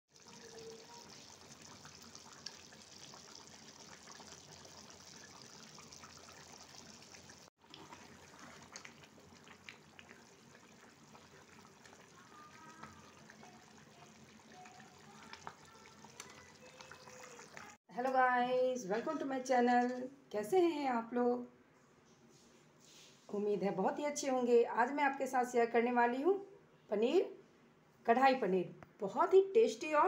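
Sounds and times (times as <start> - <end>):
gravy simmering in a pan: 0.1 - 17.8.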